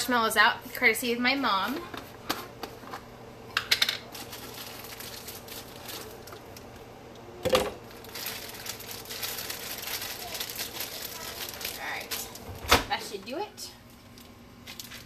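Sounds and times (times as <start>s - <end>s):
plastic bag crinkling: 4.0s - 6.7s, 7.8s - 12.6s, 14.1s - 15.0s.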